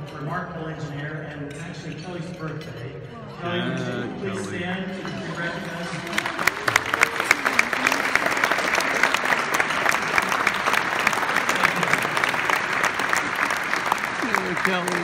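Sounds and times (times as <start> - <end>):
audience applauding: 5.8 - 15.0.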